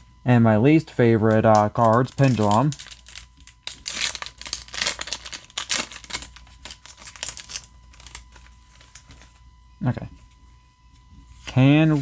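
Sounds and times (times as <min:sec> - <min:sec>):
foil wrapper crinkling: 0:01.3 - 0:09.4.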